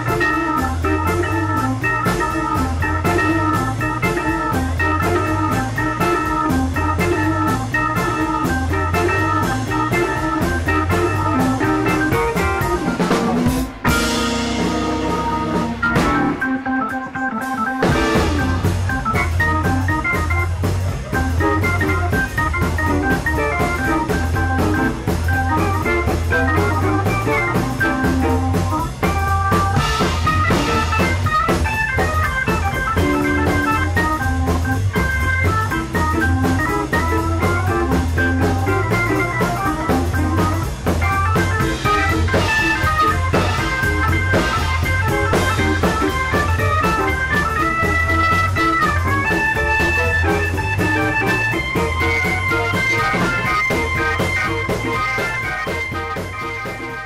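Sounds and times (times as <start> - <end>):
drum kit: 0.0 - 57.0
hammond organ playing: 0.0 - 57.0
pulsing bass line: 0.0 - 57.0.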